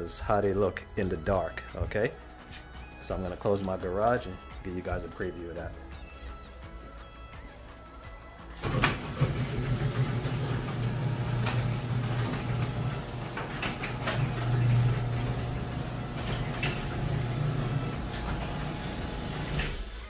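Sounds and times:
garage door clicking and rattling: 0:08.5 - 0:20.0
garage door motor hum: 0:08.5 - 0:20.0.

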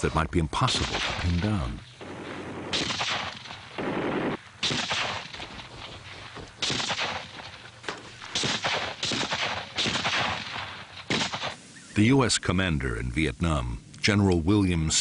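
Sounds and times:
gunfire bursts: 0:00.7 - 0:11.6.

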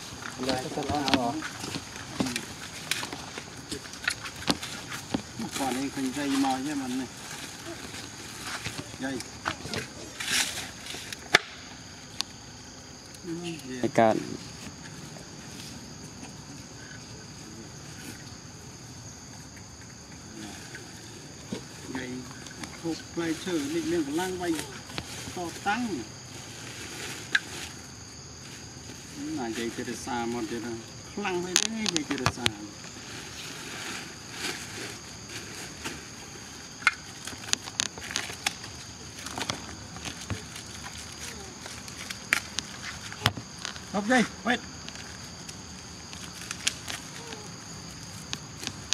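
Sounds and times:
high-pitched insect drone: 0:00.0 - 0:48.9
faint ticks and rustles: 0:19.1 - 0:48.9.

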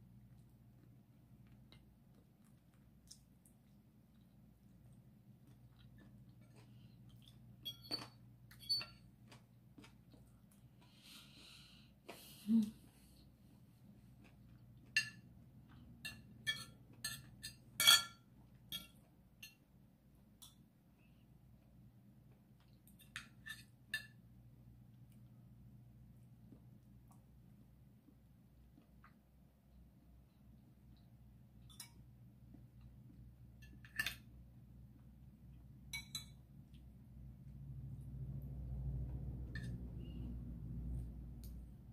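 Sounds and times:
cutlery clinking on a plate: 0:07.6 - 0:09.0, 0:14.9 - 0:15.3, 0:16.0 - 0:19.6, 0:33.6 - 0:34.3, 0:35.9 - 0:36.4.

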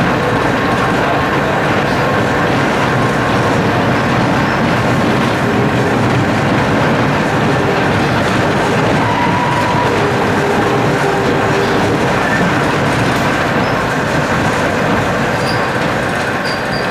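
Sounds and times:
tram body rattling: 0:00.0 - 0:16.9
tram wheels on rails: 0:00.0 - 0:16.9
thin wheel squeal: 0:15.4 - 0:15.7, 0:16.4 - 0:16.9.

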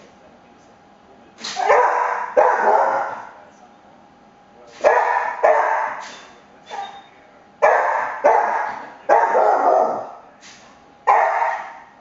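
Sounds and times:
dog barking: 0:01.5 - 0:03.3, 0:04.8 - 0:07.0, 0:07.6 - 0:10.1, 0:11.1 - 0:11.9.

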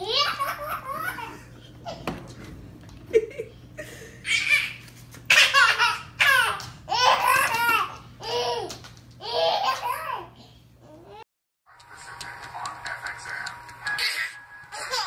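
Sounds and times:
baby laughing: 0:00.0 - 0:02.1, 0:04.2 - 0:10.3, 0:14.0 - 0:15.0.

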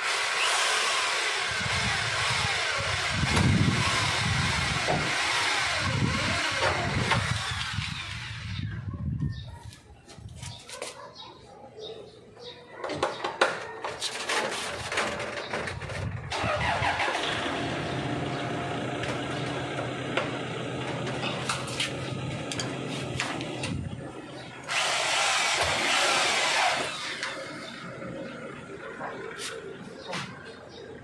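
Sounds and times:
motor running steadily: 0:00.0 - 0:08.8, 0:17.2 - 0:29.4.

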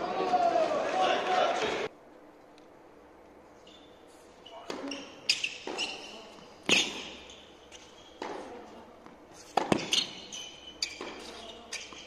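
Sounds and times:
shoes squeaking on court: 0:03.6 - 0:12.0
racket hitting tennis ball: 0:04.6 - 0:06.0, 0:06.6 - 0:10.2, 0:10.8 - 0:12.0.

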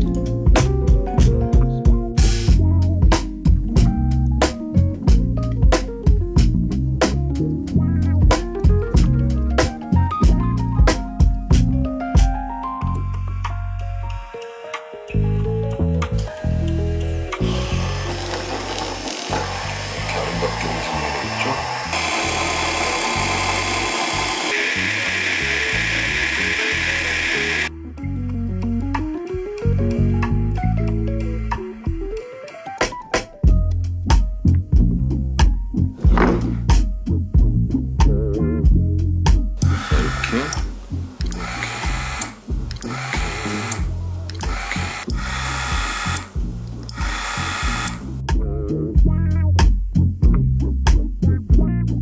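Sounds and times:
background music with bass: 0:00.0 - 0:52.0
handheld power tool running: 0:16.6 - 0:27.7, 0:39.6 - 0:48.2.

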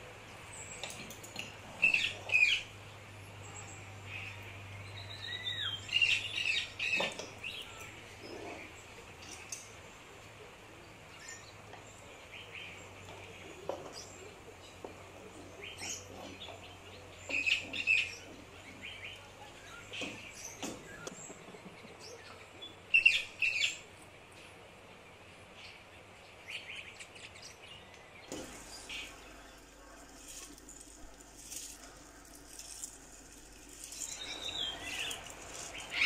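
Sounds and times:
small bird chirping: 0:26.6 - 0:36.0.

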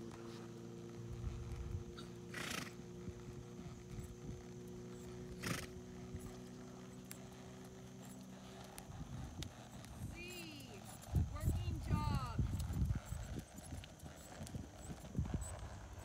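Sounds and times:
steady low hum: 0:00.0 - 0:16.0
horse snorting: 0:01.9 - 0:11.1.

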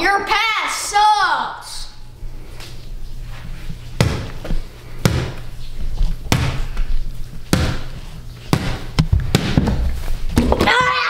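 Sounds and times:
basketball bouncing on hardwood floor: 0:04.0 - 0:05.4, 0:06.3 - 0:06.7, 0:07.5 - 0:10.9.

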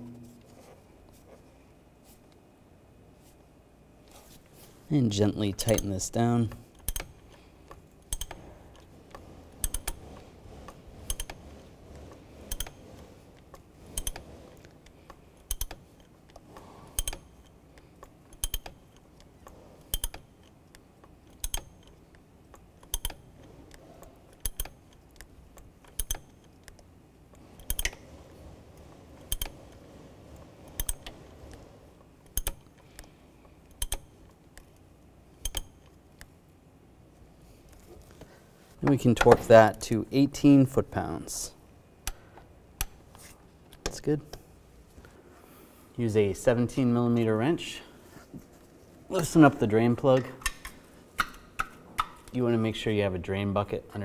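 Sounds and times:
hand ratchet clicking: 0:06.7 - 0:10.0, 0:11.0 - 0:11.6, 0:12.4 - 0:26.8, 0:27.5 - 0:28.1, 0:29.2 - 0:29.7, 0:30.7 - 0:31.2, 0:32.2 - 0:33.1, 0:33.7 - 0:34.8, 0:35.4 - 0:36.3.

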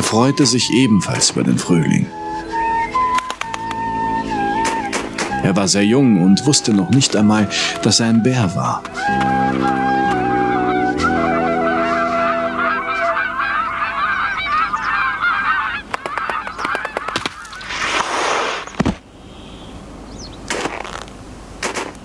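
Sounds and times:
background music: 0:00.0 - 0:14.5
geese honking: 0:00.0 - 0:18.0.

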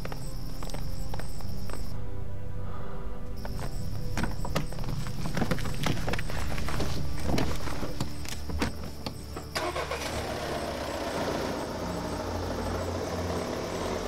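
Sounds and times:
car engine starting and running: 0:03.6 - 0:14.0.

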